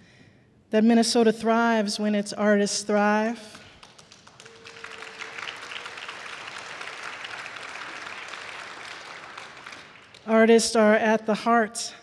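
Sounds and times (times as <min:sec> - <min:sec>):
audience applauding: 0:03.8 - 0:10.3.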